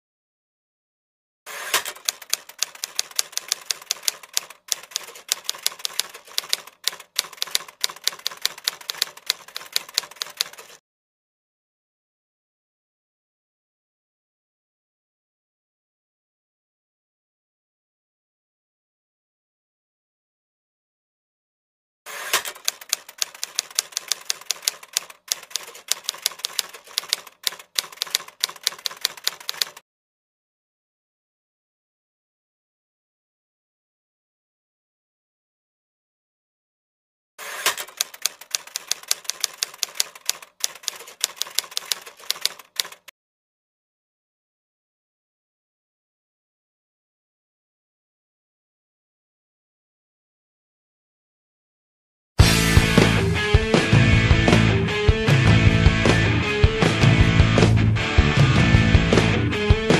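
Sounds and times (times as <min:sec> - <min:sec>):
typewriter keys clacking: 0:01.8 - 0:10.8, 0:22.4 - 0:29.8, 0:37.6 - 0:43.1.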